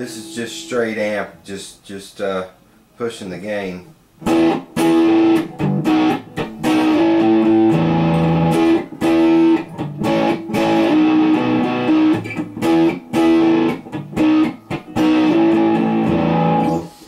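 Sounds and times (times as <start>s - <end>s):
distorted electric guitar riff: 4.2s - 17.0s.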